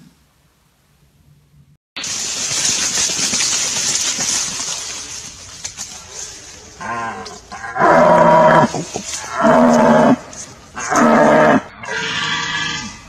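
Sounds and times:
deer stag roaring: 10.8 - 13.0.

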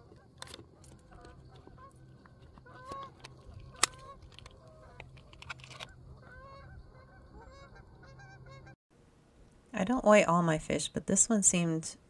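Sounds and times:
birds calling over water: 0.1 - 8.8.

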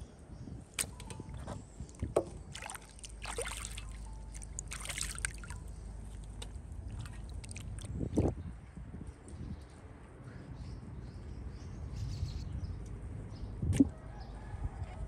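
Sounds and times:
water sloshing in a basin: 0.8 - 8.4.

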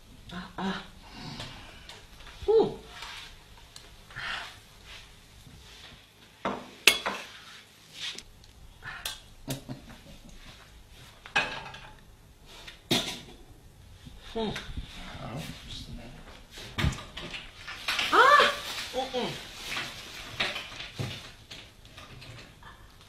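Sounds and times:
kitchenware clinking and knocking: 6.5 - 7.3, 11.3 - 12.0, 12.9 - 13.4.

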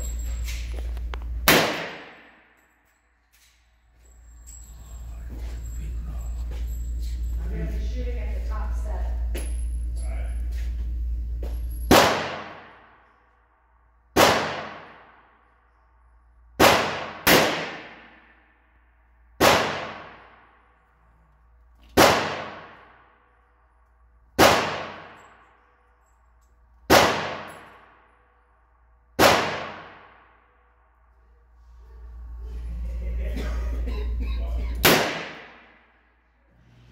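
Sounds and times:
revolver shots with ringing echo: 1.4 - 2.5, 11.7 - 13.0, 14.1 - 15.5, 16.6 - 18.6, 19.4 - 20.7, 21.9 - 23.2, 24.4 - 25.7, 26.9 - 28.2, 29.2 - 30.7, 34.8 - 35.9.

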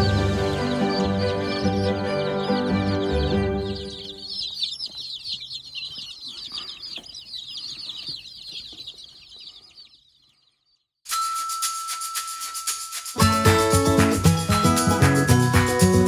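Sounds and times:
hen clucking: 0.0 - 10.1
chicks peeping: 0.0 - 10.9.

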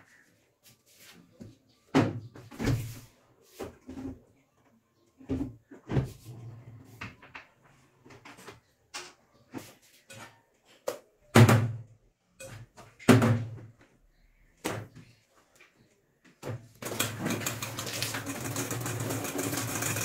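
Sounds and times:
whisk beating cream in steel bowl: 17.0 - 20.0.

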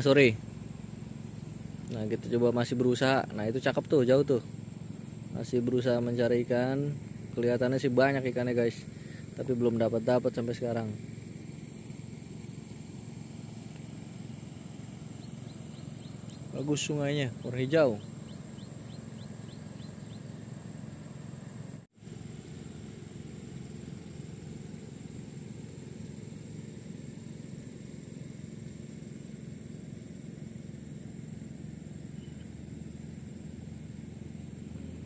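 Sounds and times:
faint ticks: 13.5 - 14.0, 15.7 - 16.4
high-pitched whine: 29.3 - 35.0.

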